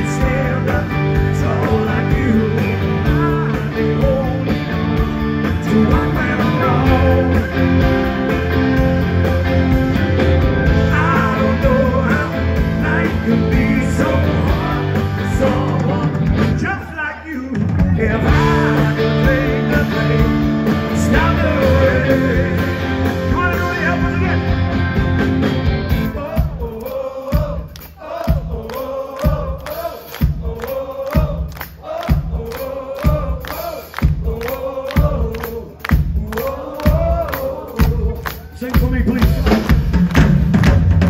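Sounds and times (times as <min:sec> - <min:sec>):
live blues rock band: 0:00.0 - 0:26.7, 0:27.4 - 0:41.0
person singing: 0:05.4 - 0:08.0, 0:10.6 - 0:24.5.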